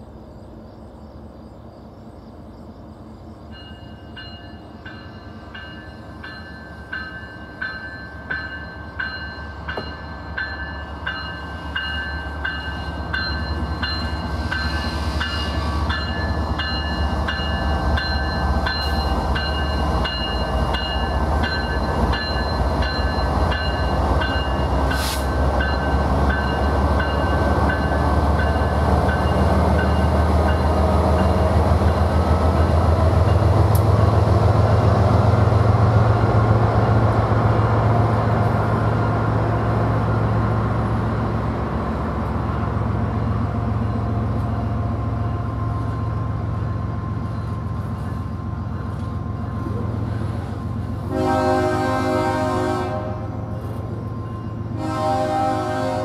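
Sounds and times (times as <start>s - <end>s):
diesel locomotive engine rumble: 0.0s - 56.0s
crossing warning bell ringing: 3.5s - 34.1s, 42.4s - 56.0s.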